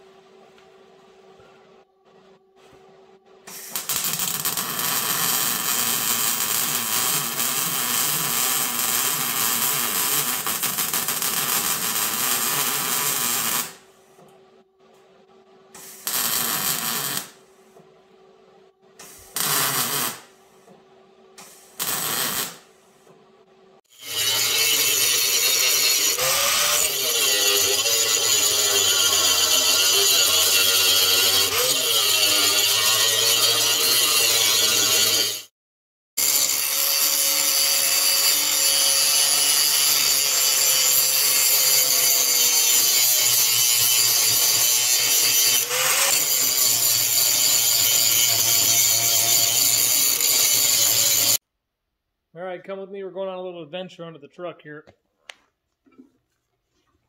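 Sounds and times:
welder crackling: 0:03.5 - 0:13.8, 0:15.7 - 0:17.4, 0:19.0 - 0:20.3, 0:21.4 - 0:22.7, 0:36.3 - 0:51.4
angle grinder grinding: 0:23.9 - 0:35.5, 0:36.2 - 0:51.4.

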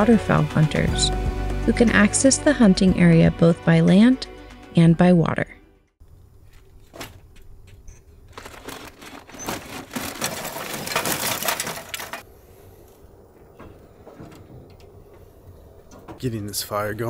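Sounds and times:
charcoal poured into a grill: 0:08.4 - 0:12.2.

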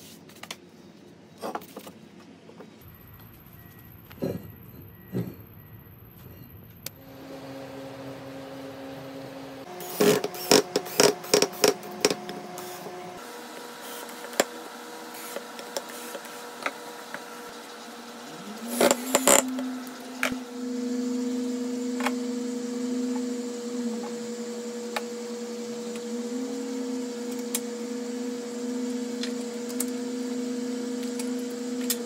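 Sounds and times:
steady hum: 0:06.8 - 0:32.0.

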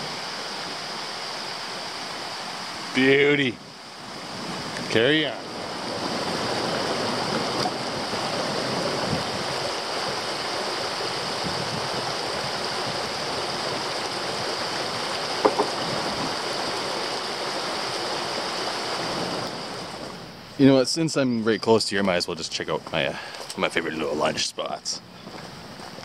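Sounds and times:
creek water running over rocks: 0:00.0 - 0:20.8.

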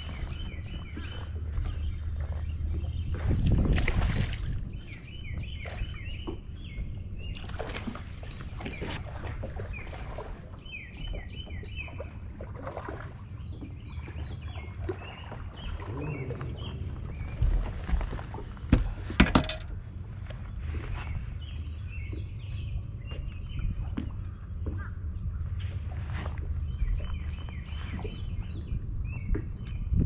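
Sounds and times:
songbird singing: 0:00.0 - 0:30.0
low rumble: 0:15.5 - 0:30.0.

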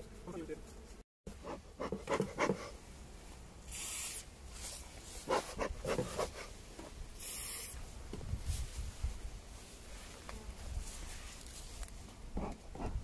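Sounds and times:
aerosol can hissing spray: 0:03.7 - 0:04.3, 0:07.2 - 0:07.8.

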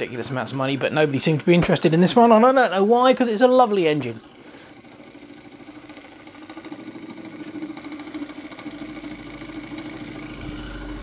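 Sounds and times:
model steam engine running: 0:00.0 - 0:11.0.

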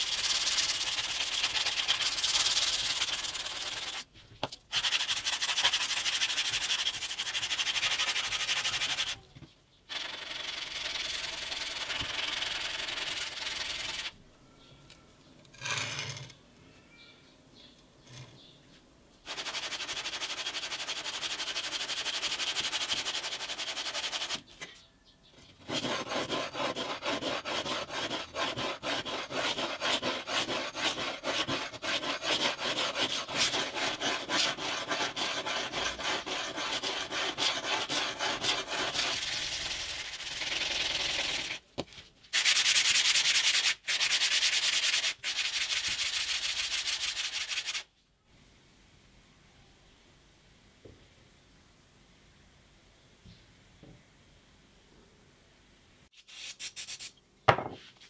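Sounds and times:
knife blade scraping on sandpaper: 0:00.0 - 0:04.0, 0:04.7 - 0:09.2, 0:25.6 - 0:41.6.

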